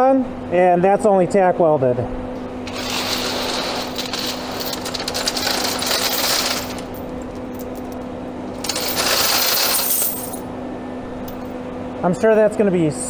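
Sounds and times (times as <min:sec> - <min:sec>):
steady low hum: 0:00.0 - 0:13.0
chain rattling and clinking: 0:02.7 - 0:08.0, 0:08.6 - 0:10.4.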